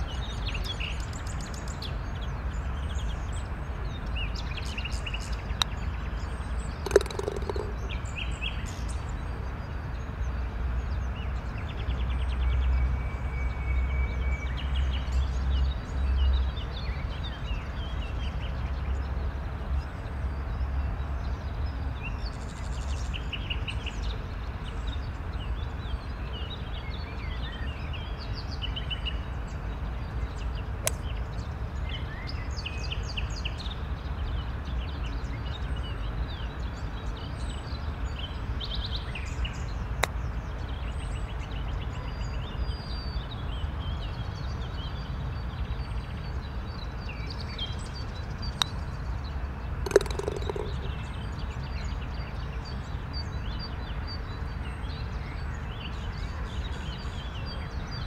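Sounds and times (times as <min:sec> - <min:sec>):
small birds chirping: 0:00.0 - 0:09.3, 0:47.0 - 0:53.9
sharp click: 0:06.9 - 0:08.0, 0:49.9 - 0:51.0.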